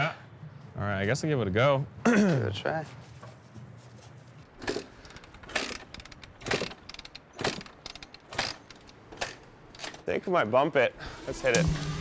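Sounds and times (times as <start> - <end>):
dirt bike kick-start: 4.6 - 10.0, 11.2 - 12.0
engine turning over: 11.1 - 12.0.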